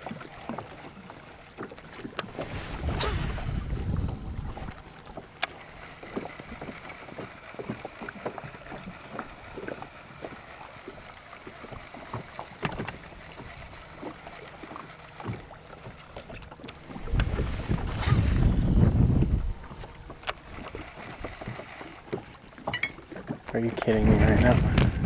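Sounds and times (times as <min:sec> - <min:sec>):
waves lapping against boat hull: 0:00.0 - 0:25.0
wind rumble on microphone: 0:02.1 - 0:05.4, 0:16.8 - 0:20.9, 0:23.7 - 0:25.0.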